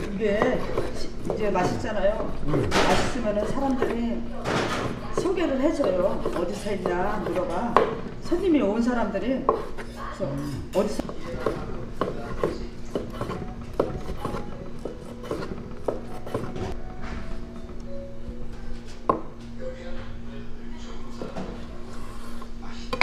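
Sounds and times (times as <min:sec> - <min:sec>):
knife cutting on wooden board: 0:00.0 - 0:01.8, 0:04.7 - 0:07.9, 0:11.0 - 0:16.8.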